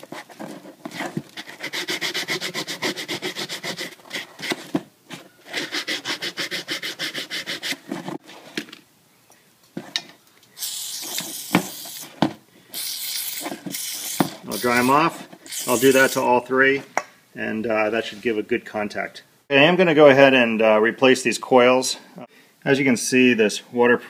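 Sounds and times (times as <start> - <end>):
steady hiss: 6.6 - 19.5.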